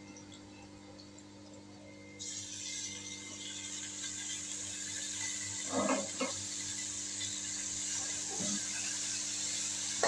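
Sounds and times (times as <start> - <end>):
chicken sizzling in oil: 2.2 - 10.0.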